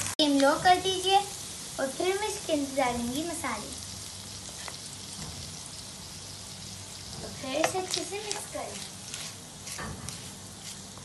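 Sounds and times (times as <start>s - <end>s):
meat sizzling in oil: 0.0s - 11.0s
wooden spatula scraping: 7.3s - 11.0s.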